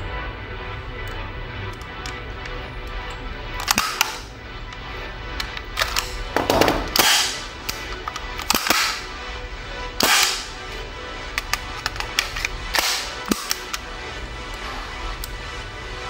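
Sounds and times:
faint background music: 0.0s - 16.0s
gun metal clacks: 3.6s - 4.2s, 5.4s - 9.0s.

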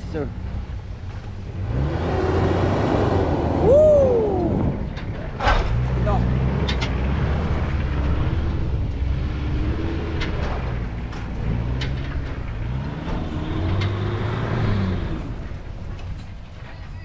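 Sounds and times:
engine revving: 0.2s - 16.7s.

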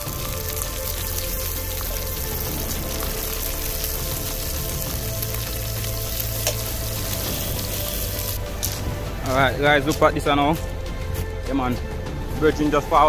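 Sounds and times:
fish frying in oil: 0.0s - 8.4s
background music: 0.0s - 13.0s.

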